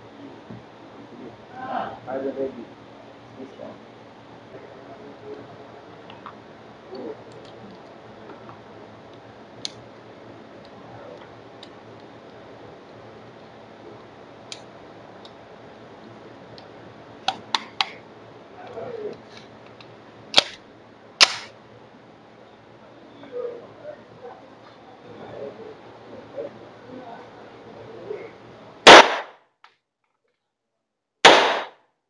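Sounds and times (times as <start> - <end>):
pistol gunshots: 21.2 - 21.5, 28.9 - 29.3, 31.2 - 31.8.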